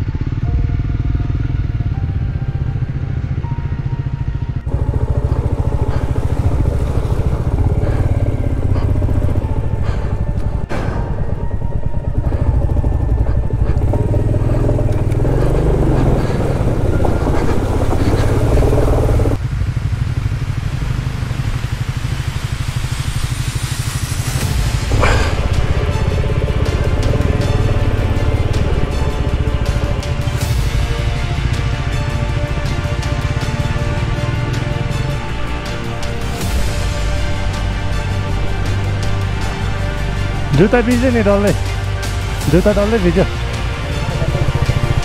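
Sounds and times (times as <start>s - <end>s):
motorcycle engine running: 0.0s - 45.0s
water splashing around wheels: 4.7s - 10.6s, 11.2s - 39.2s.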